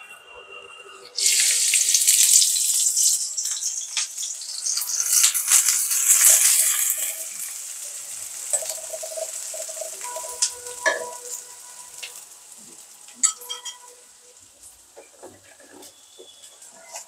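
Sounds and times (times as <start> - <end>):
onions sizzling in hot oil: 1.2 - 17.0
metal spatula scraping pan: 8.5 - 12.2.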